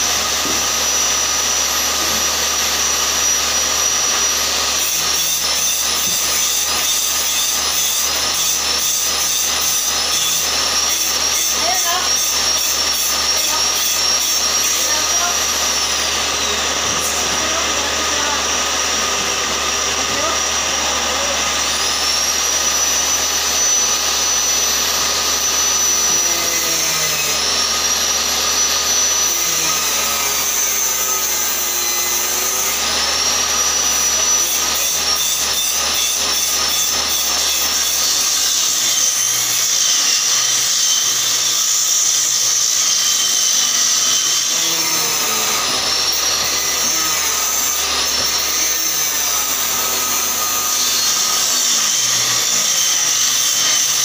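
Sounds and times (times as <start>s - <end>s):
table saw ripping boards: 0.0s - 54.0s.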